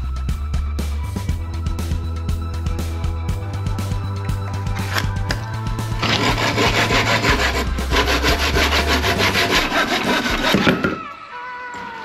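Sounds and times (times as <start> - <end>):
background music: 0.0 - 12.0
hand saw cutting timber: 5.9 - 11.1.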